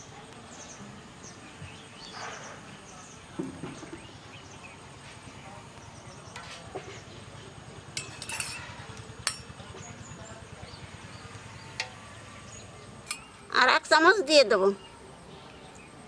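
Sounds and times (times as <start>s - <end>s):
spoon clinking against metal bowl: 8.0s - 9.6s.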